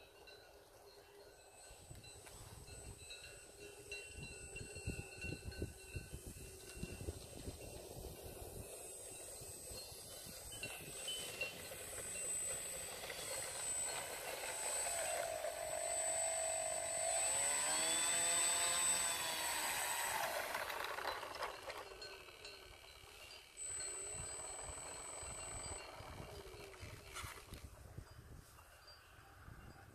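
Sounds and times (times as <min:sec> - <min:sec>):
model plane motor whining: 0:04.2 - 0:27.6.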